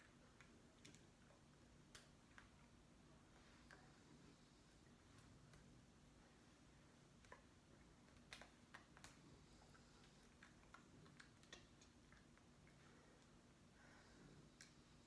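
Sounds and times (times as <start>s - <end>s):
small clicks and taps: 0.0s - 2.7s, 7.2s - 9.3s, 10.0s - 13.3s.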